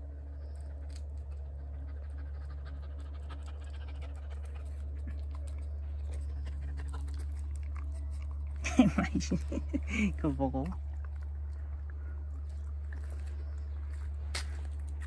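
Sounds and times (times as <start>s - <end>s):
steady low hum: 0.0s - 15.0s
dog panting: 1.2s - 10.1s.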